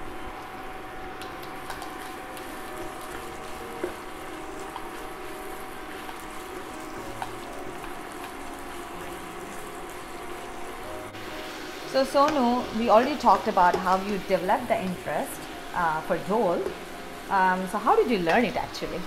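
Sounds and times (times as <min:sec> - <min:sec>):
onions sizzling in oil: 0:00.0 - 0:19.0.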